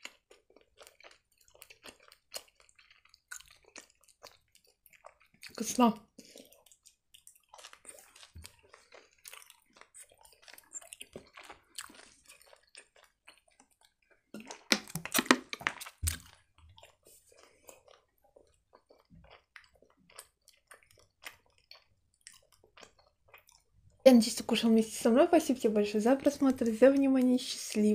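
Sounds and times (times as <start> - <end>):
chewing gummy candy: 0.0 - 27.9
drinking water with gulps: 14.3 - 16.3.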